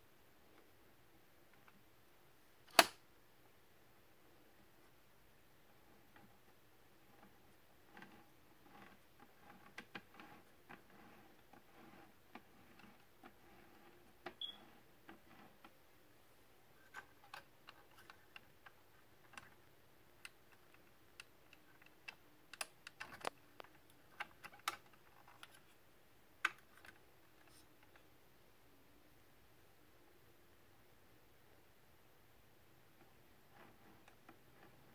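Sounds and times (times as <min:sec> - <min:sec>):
small clicks and taps of handling: 0:16.9 - 0:25.7.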